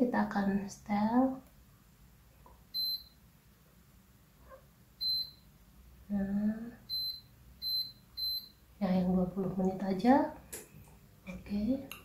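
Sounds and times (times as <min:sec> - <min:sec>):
short high beeps: 0:02.8 - 0:03.2, 0:05.0 - 0:05.4, 0:06.9 - 0:08.6.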